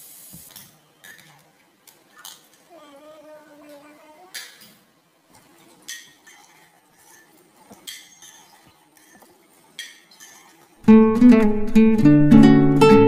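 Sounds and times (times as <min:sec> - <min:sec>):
soft stirring of curry: 0:05.2 - 0:10.8.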